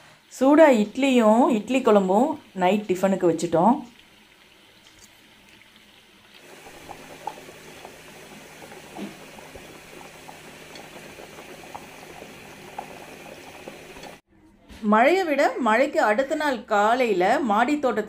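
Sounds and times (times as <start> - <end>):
curry bubbling in a pot: 0.8 - 14.2.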